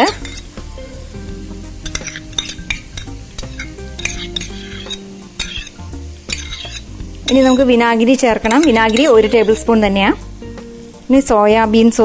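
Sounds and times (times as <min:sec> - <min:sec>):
metal spoon clinking and scraping: 0:00.0 - 0:00.6, 0:01.8 - 0:07.8, 0:08.4 - 0:09.8
vegetables sizzling in oil: 0:00.0 - 0:12.0.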